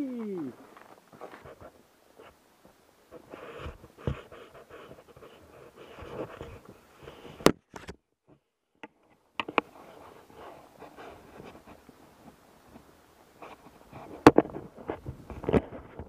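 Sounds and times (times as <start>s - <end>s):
handling noise and gear rustling: 0.2s - 7.8s.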